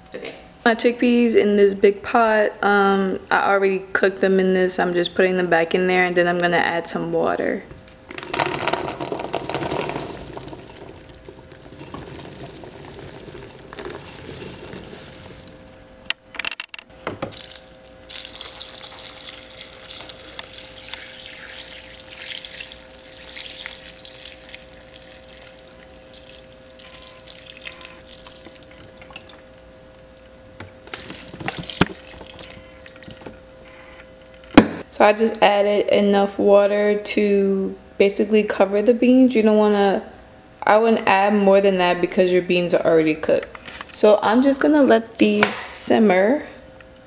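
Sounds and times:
faint steady hum: 0.0 - 47.0
chickpeas tumbling into metal pot: 8.1 - 15.6, 30.9 - 33.2
water pouring and splashing: 9.4 - 15.7, 17.2 - 29.5, 30.9 - 33.3.

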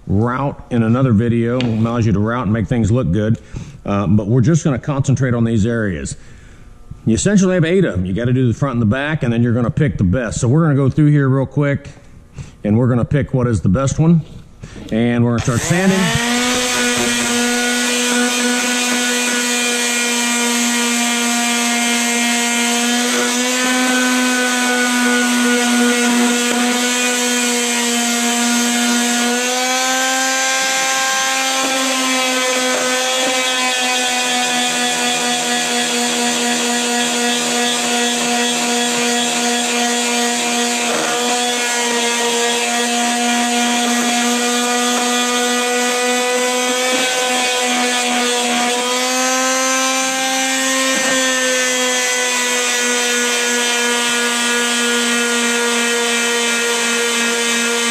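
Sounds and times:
electric sander on wood: 15.4 - 57.9.

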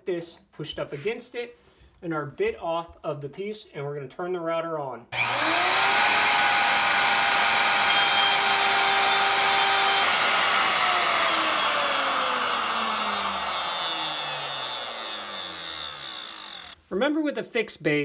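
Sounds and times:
router motor whine: 5.2 - 16.8.

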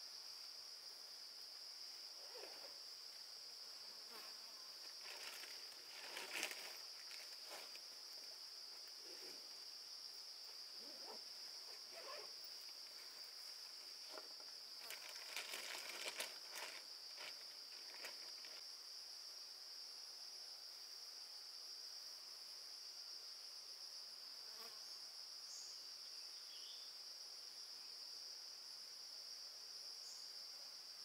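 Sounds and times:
insects chirring: 0.0 - 31.0.

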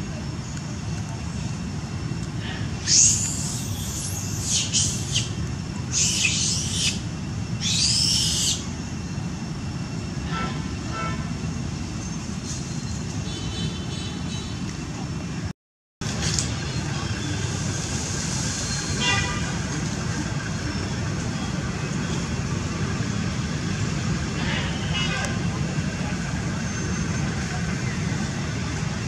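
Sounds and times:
distant traffic rumble: 0.0 - 29.0
shrill animal calls: 2.8 - 5.3, 5.9 - 7.0, 7.6 - 8.7.

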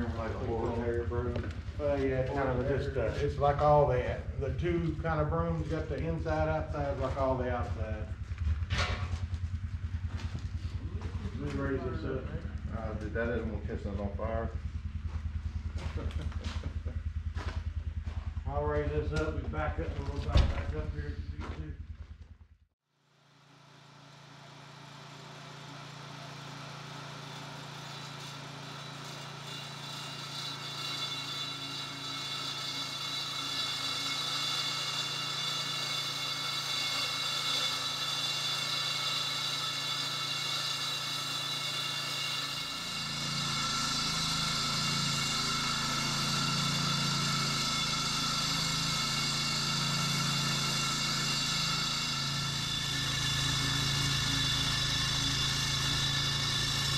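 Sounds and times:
high-pitched saw blade whine: 0.0 - 21.8, 23.4 - 56.9
petrol engine hum: 0.0 - 22.6, 42.7 - 56.9.

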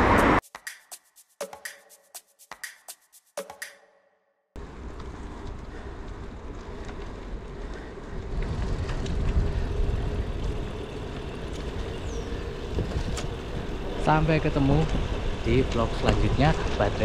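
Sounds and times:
bicycle tyre road noise: 4.6 - 17.0
wind rushing over microphone: 8.1 - 14.1.

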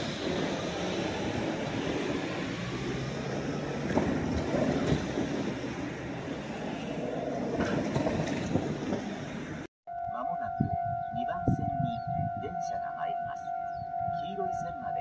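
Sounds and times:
train wheels rumbling on track: 0.0 - 9.7.

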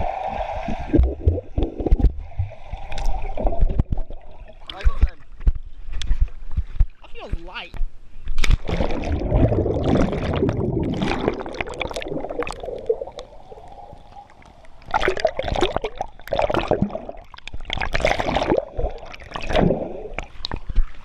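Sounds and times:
pool water splashing: 8.4 - 21.0.

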